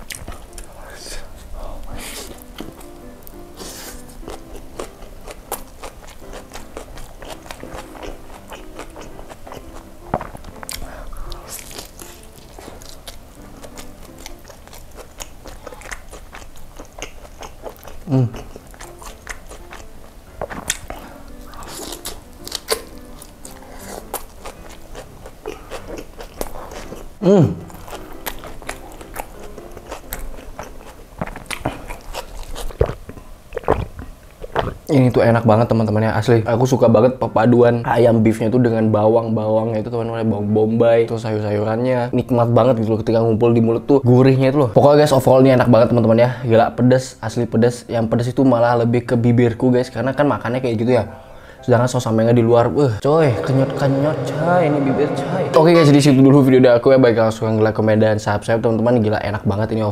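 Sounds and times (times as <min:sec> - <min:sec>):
chewing and biting food: 0:00.0 - 0:00.7, 0:02.1 - 0:34.9.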